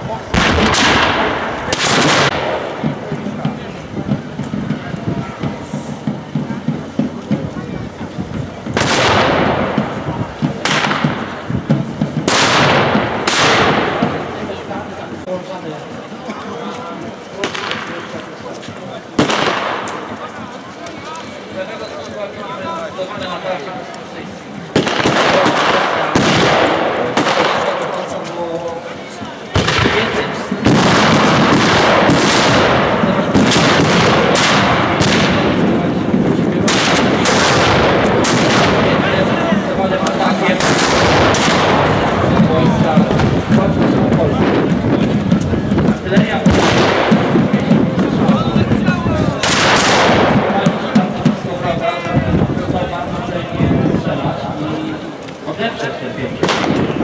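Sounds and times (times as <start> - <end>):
musket shots with echo: 0.3 - 2.9, 8.8 - 9.9, 10.6 - 11.3, 12.2 - 14.4, 19.2 - 20.1, 24.7 - 28.0, 29.5 - 35.9, 36.6 - 44.7, 46.4 - 48.1, 49.4 - 51.0, 56.4 - 57.0.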